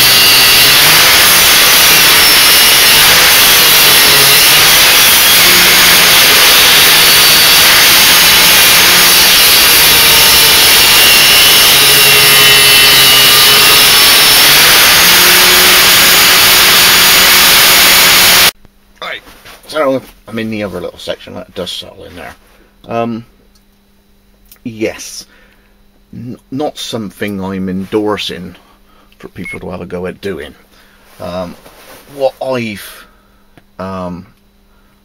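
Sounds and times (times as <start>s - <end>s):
angle grinder grinding steel: 0.0s - 18.6s.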